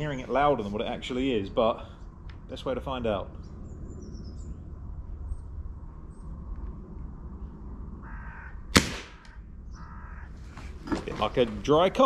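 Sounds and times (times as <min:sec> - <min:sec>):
air rifle shot: 0:08.7 - 0:09.4.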